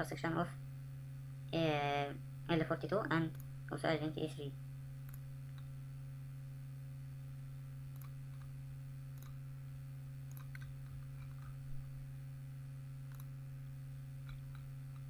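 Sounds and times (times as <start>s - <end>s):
low electrical hum: 0.0s - 15.0s
computer mouse clicking: 7.9s - 8.5s, 9.2s - 9.4s, 10.3s - 11.6s, 13.1s - 13.3s, 14.2s - 15.0s.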